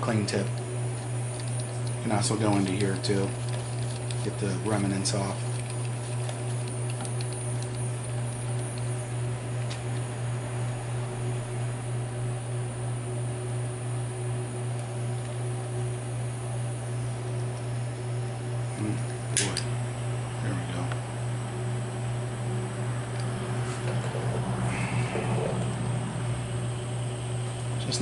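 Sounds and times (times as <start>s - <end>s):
low machine hum: 0.0s - 28.0s
sharp click: 19.3s - 19.7s.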